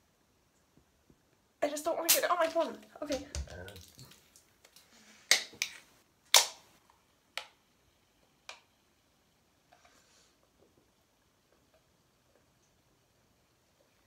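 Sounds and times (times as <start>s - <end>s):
metallic pops and clicks of can: 5.3s - 6.6s.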